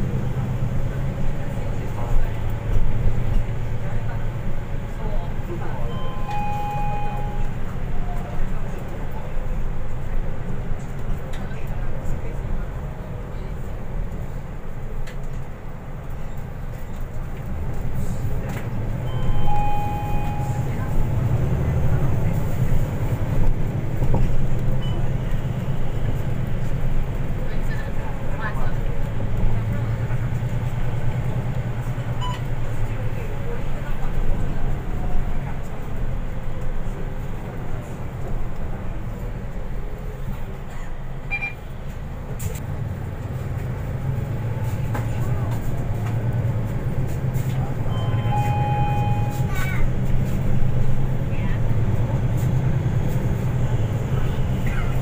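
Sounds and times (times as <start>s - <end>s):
bus engine drone: 0.0s - 55.0s
road noise: 0.0s - 55.0s
high electronic beep: 5.9s - 7.5s, 19.1s - 20.7s, 47.9s - 49.5s.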